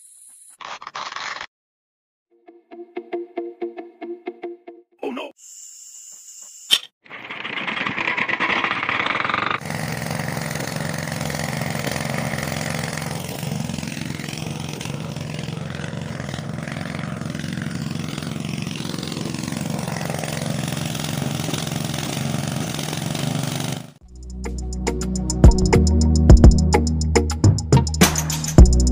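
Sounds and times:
model diesel engine running: 7.3s - 25.6s.

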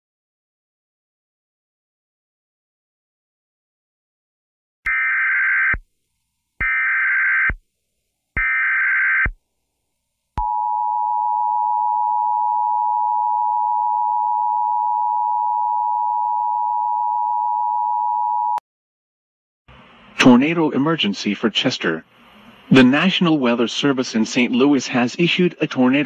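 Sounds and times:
buzzing data bursts: 4.9s - 5.8s, 6.6s - 7.6s, 8.4s - 9.4s.

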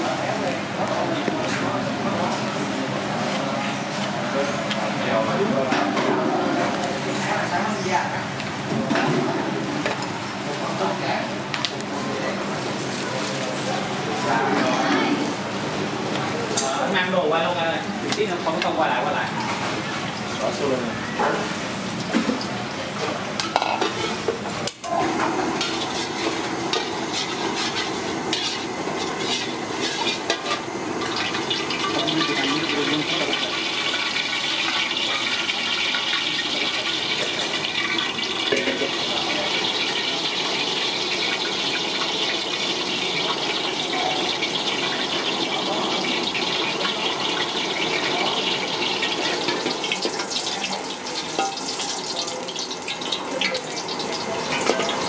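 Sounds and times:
ladle clinking and scraping wok: 23.4s - 24.3s, 24.9s - 55.0s
oil hissing in a wok: 24.9s - 55.0s.

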